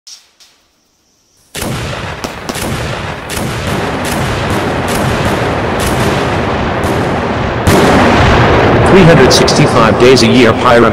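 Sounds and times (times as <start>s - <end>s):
sharp cracks: 1.5s - 9.0s
explosion blast and rumble: 1.6s - 10.9s.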